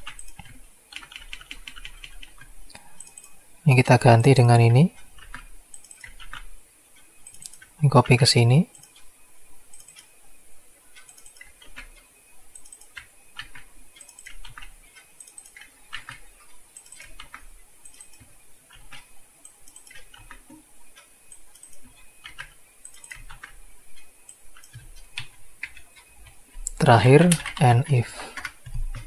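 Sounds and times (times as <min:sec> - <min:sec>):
computer keyboard keys clicking: 0:00.0 - 0:03.4, 0:04.9 - 0:09.1, 0:09.7 - 0:10.1, 0:10.9 - 0:29.0
mouse buttons clicking: 0:07.2 - 0:07.7, 0:11.0 - 0:29.0.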